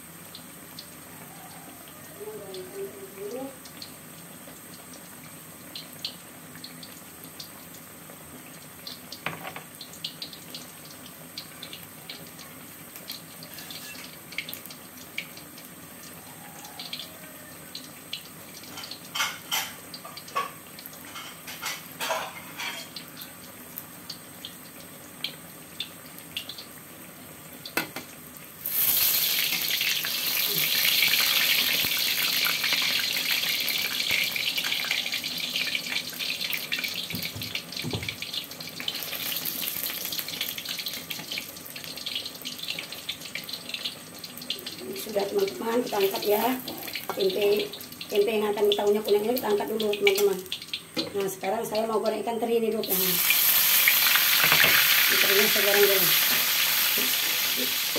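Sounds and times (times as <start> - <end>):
oil sizzling with pops: 0.0 - 57.9
spatula turning food: 13.4 - 14.8.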